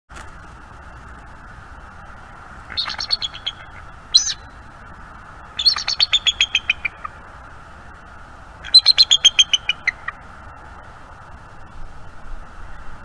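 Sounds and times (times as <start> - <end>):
eagle calling with high piping notes: 2.7 - 4.7, 5.4 - 7.2, 8.6 - 10.2.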